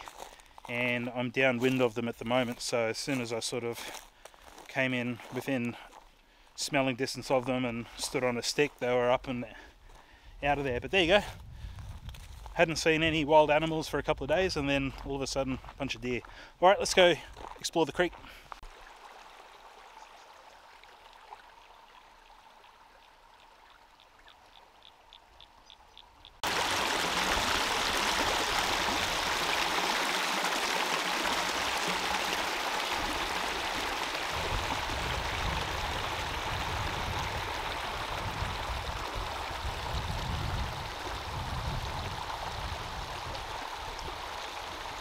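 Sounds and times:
creek water rushing: 0.0s - 0.5s, 18.1s - 25.1s, 26.4s - 45.0s.

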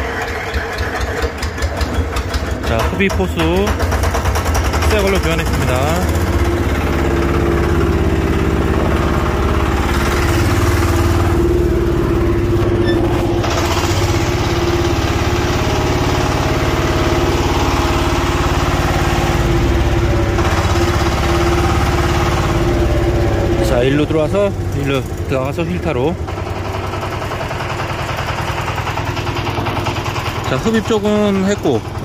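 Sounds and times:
tractor diesel engine idling: 0.0s - 32.0s.

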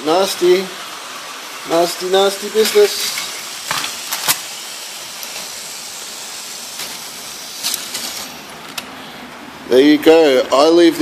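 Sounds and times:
toy train motor whirring: 0.9s - 8.4s.

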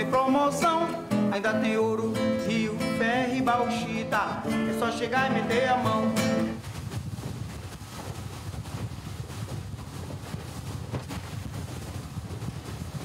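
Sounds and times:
wind rushing over microphone: 6.5s - 13.0s.

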